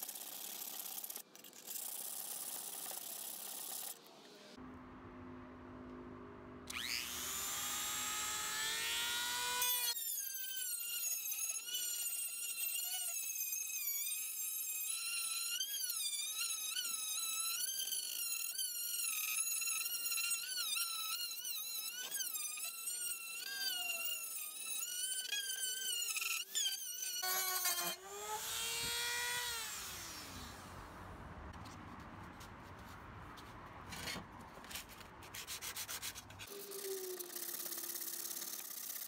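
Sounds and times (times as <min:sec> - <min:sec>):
rotary tool whining: 0:06.7 - 0:30.8, 0:36.4 - 0:39.0.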